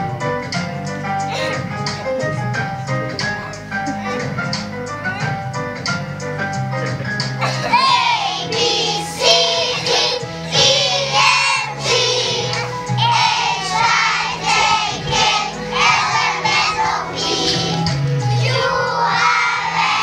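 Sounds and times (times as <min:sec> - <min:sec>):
children singing in chorus: 0:07.7 - 0:20.0.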